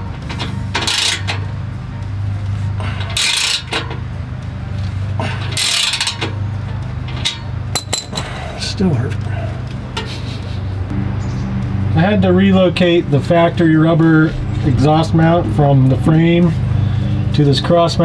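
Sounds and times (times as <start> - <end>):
steel exhaust pipe scraping: 0.0 - 1.5, 2.4 - 4.1, 5.2 - 7.5.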